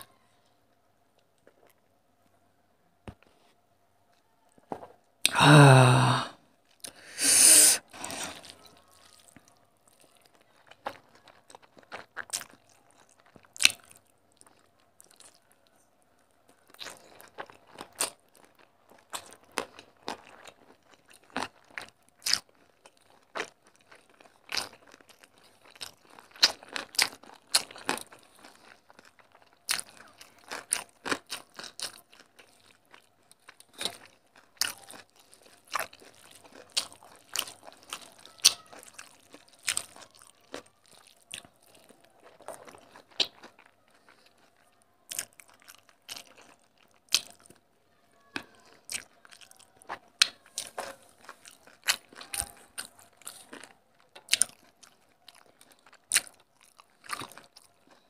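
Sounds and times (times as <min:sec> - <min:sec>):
falling vocal sound: 0:05.3 - 0:08.4
loud breathy burst: 0:05.3 - 0:08.4
wet chewing and smacking: 0:08.0 - 0:58.0.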